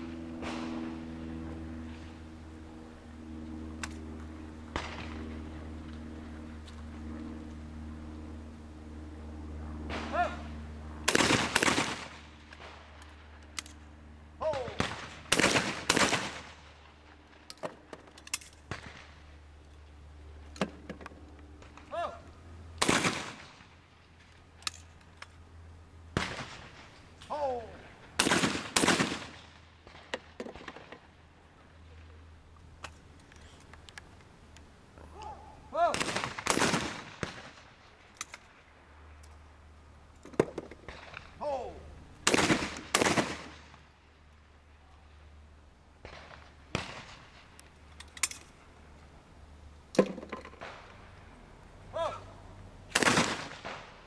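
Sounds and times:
shotgun shots with echo: 14.5 - 16.6, 22.8 - 23.5, 28.2 - 30.0, 35.8 - 37.6, 42.2 - 43.7, 52.9 - 53.9.

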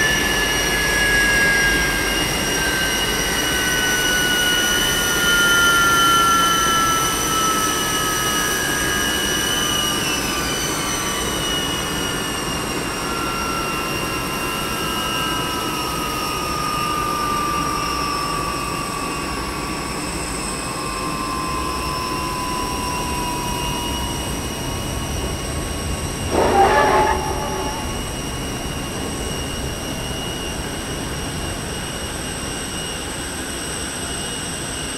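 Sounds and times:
jet engines winding down: 0.0 - 34.9
short loud squeal: 26.3 - 28.3.

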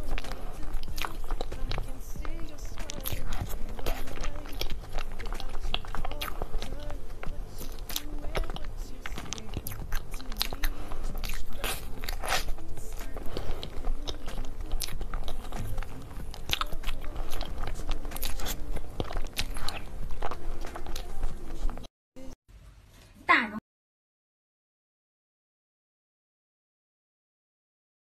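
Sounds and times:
spoon scooping cake: 0.0 - 21.8
biting and chewing: 0.0 - 21.9.

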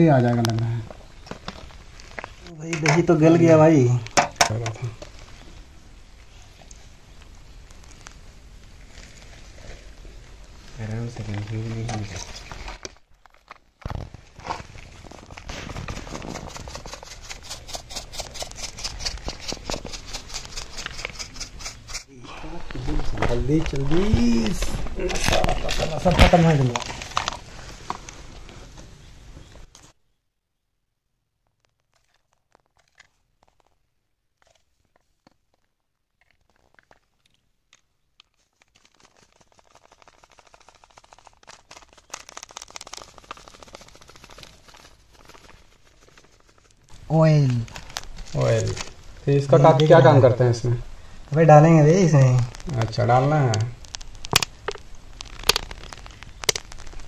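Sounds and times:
fine rapid crackling: 38.4 - 49.3, 50.2 - 57.0.

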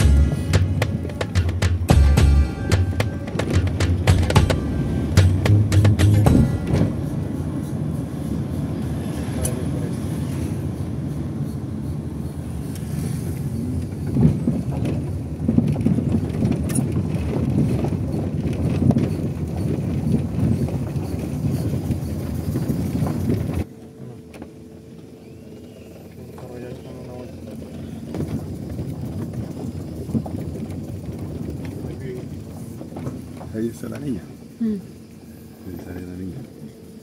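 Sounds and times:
sharp knocks: 0.0 - 6.9
vehicle driving over stone street: 0.0 - 10.8.

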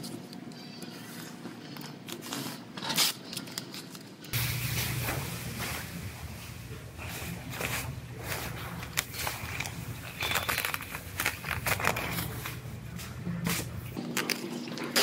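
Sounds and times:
masking tape ripping: 2.1 - 3.9, 7.6 - 12.7
plastic sheeting crinkling: 4.4 - 15.0.

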